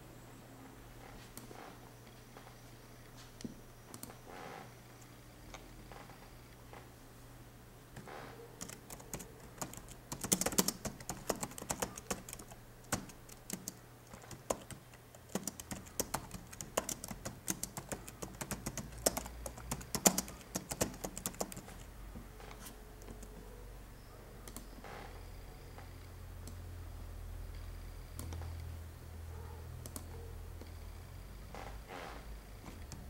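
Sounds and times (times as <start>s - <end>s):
computer keyboard typing: 8.6s - 21.9s, 23.0s - 23.3s, 24.4s - 24.7s, 29.8s - 30.1s.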